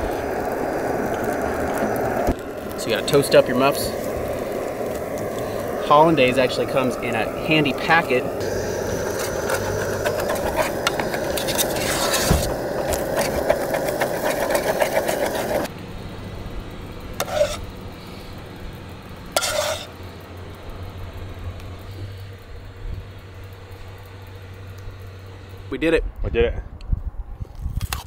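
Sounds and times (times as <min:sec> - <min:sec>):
camp stove burner rush: 0:00.0 - 0:25.8
spoon scraping pot: 0:08.4 - 0:15.7, 0:17.2 - 0:17.6, 0:19.4 - 0:19.9
utensils clicking on cookware: 0:09.1 - 0:15.7.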